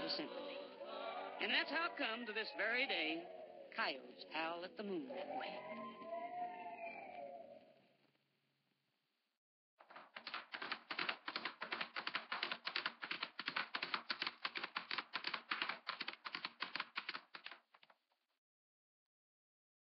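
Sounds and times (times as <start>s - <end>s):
rapid sharp clicks: 9.8s - 18.0s.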